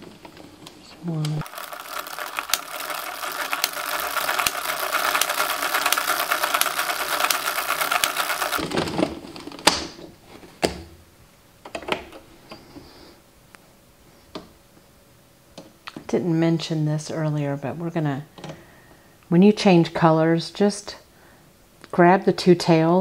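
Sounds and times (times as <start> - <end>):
knitting machine needles clattering: 1.2 - 9.1.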